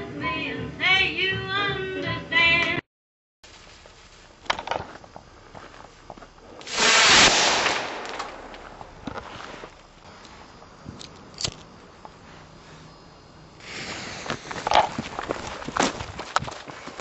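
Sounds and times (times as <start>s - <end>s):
firework rushing burst: 6.6s - 9.0s, 13.6s - 14.8s
faint firework crack: 6.6s - 9.8s, 13.6s - 16.0s.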